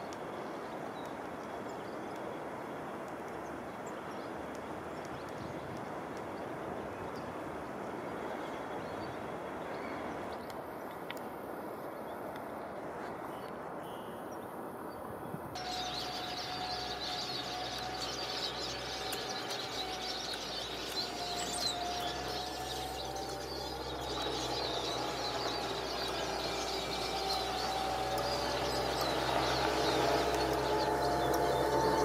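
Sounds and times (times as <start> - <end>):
small birds chirping: 15.6 - 32.0
steady low hum: 15.6 - 32.0.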